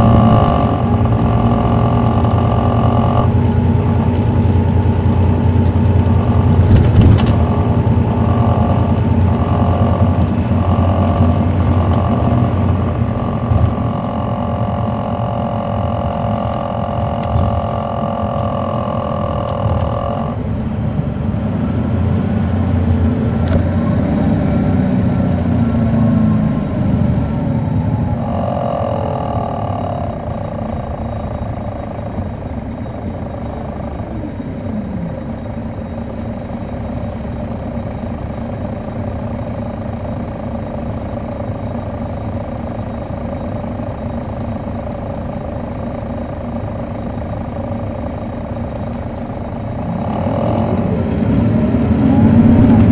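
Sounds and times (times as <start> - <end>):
high squealing tones: 0.0 - 20.5, 27.6 - 36.1
diesel coach engine rumbling: 0.0 - 52.9.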